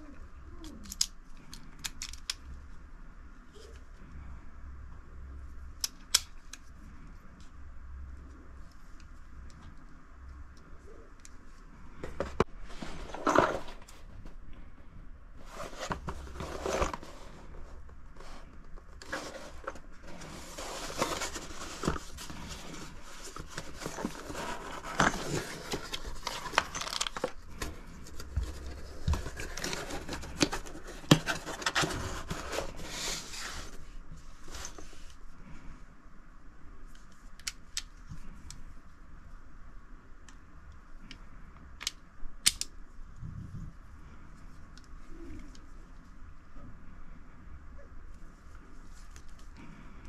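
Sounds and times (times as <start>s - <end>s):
cardboard box scraping and rustling: 15.4s - 18.4s, 19.0s - 33.8s.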